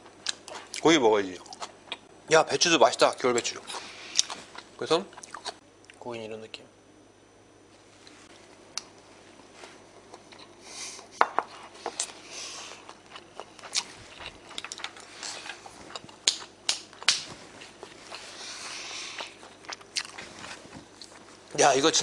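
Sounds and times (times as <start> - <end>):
chewing food: 3.6 - 6.0, 11.9 - 21.6.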